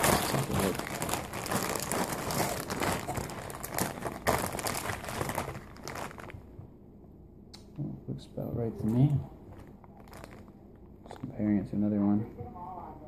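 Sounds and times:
plastic bag crinkling: 0:00.0 - 0:06.6, 0:09.5 - 0:11.4.

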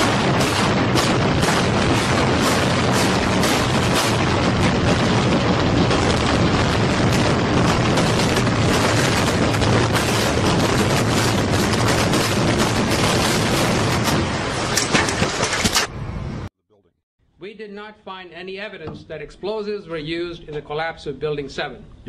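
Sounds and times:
sharp cracks: 0:00.0 - 0:15.9
building collapsing with rumbling: 0:00.0 - 0:16.0.

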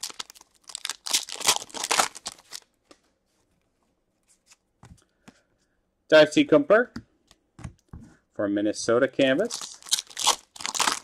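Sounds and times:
wrapper tearing and crinkling: 0:00.0 - 0:02.7, 0:09.4 - 0:11.0.

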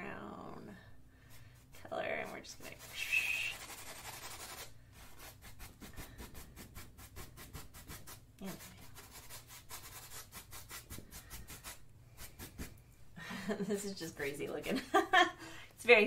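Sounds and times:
paintbrush strokes on canvas: 0:01.3 - 0:12.8.

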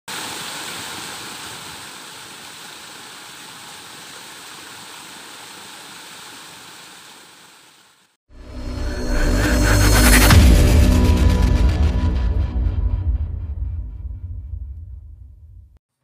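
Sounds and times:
music: 0:08.3 - 0:15.7.

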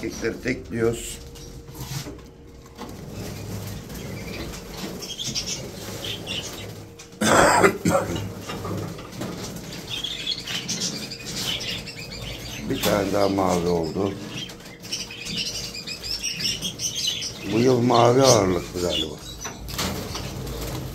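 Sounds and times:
budgerigars chirping: 0:03.2 - 0:06.8, 0:09.4 - 0:20.8
flapping wings: 0:19.7 - 0:20.9.

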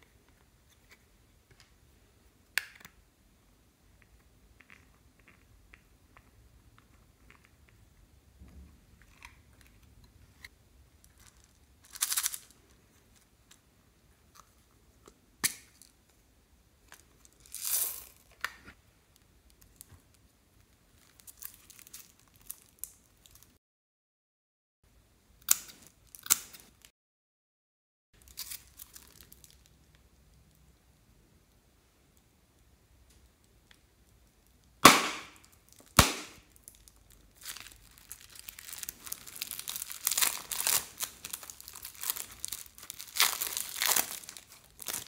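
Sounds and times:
plastic crinkling: 0:11.0 - 0:13.2, 0:21.0 - 0:23.5, 0:28.2 - 0:29.7, 0:35.3 - 0:45.0.

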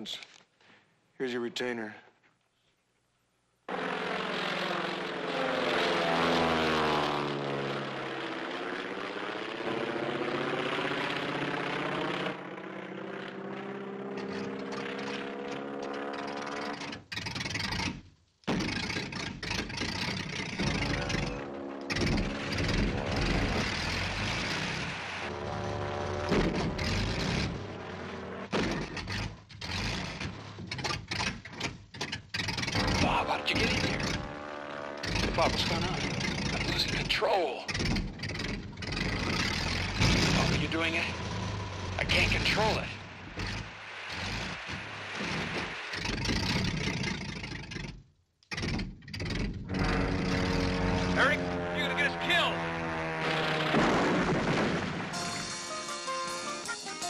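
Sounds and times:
light airplane engine droning: 0:03.7 - 0:12.6, 0:49.8 - 0:53.7
propeller plane droning: 0:03.7 - 0:18.0, 0:18.7 - 0:30.4, 0:32.3 - 0:48.0, 0:49.2 - 0:56.8.

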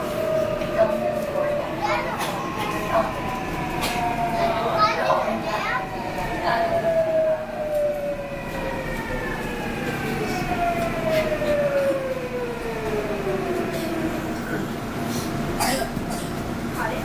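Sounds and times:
train motors whining downward in pitch: 0:00.0 - 0:14.8
wheels rumbling on rails: 0:00.0 - 0:17.0.

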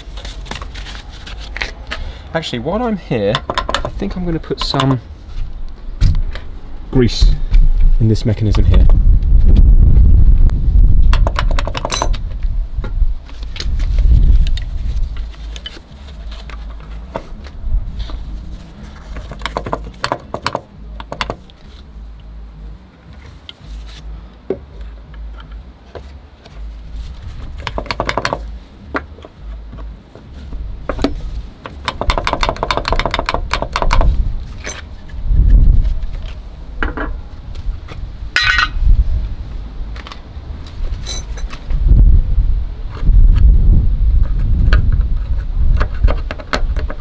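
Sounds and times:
metal tools clinking: 0:11.7 - 0:12.2, 0:34.6 - 0:34.9, 0:41.0 - 0:41.6.

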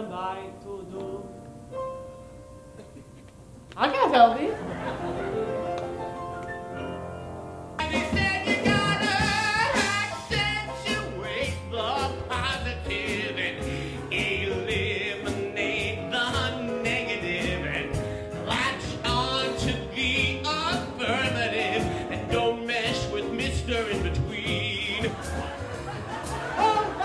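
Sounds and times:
man singing with vibrato: 0:00.0 - 0:01.4, 0:07.8 - 0:25.6
live band playing: 0:04.2 - 0:27.0.

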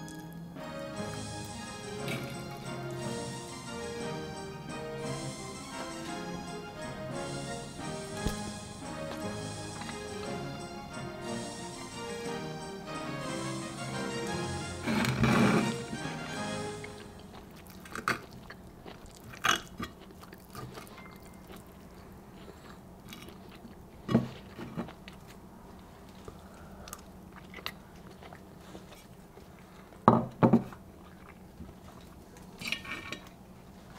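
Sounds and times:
person chewing: 0:16.7 - 0:30.0, 0:30.6 - 0:32.6.

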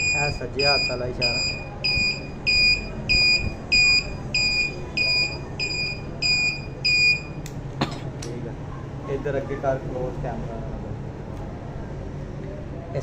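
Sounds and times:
turn-signal buzzer beeping: 0:00.0 - 0:07.4.

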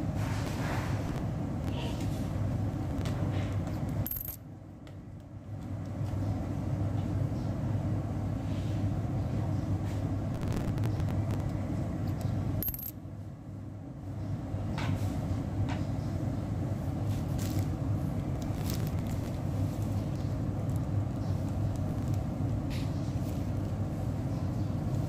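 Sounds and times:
coin clicks: 0:04.0 - 0:04.4, 0:12.6 - 0:13.0.

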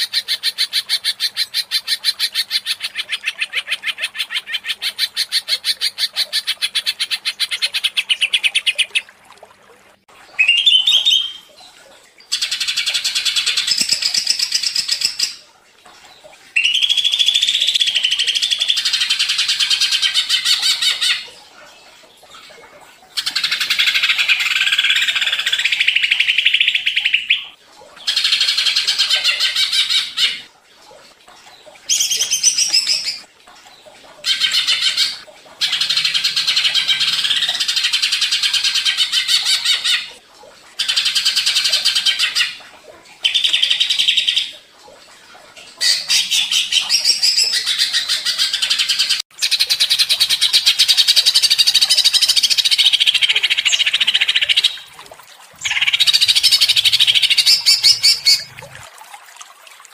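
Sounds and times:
bird singing trilled phrases: 0:10.4 - 0:11.5, 0:16.6 - 0:18.7, 0:31.9 - 0:33.3, 0:55.6 - 0:58.6.

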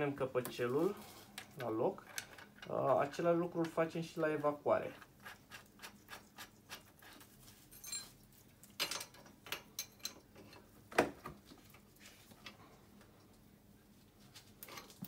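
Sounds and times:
metal tools clicking and clinking: 0:07.7 - 0:08.2, 0:08.8 - 0:10.6.

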